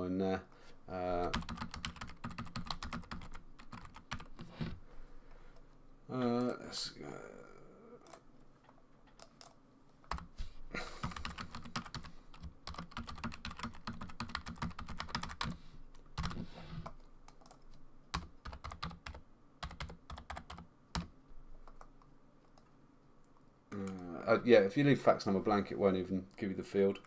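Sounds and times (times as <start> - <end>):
typing on computer keyboard: 1.3 - 4.4, 9.1 - 10.3, 11.0 - 15.6, 16.2 - 16.4, 17.3 - 21.9.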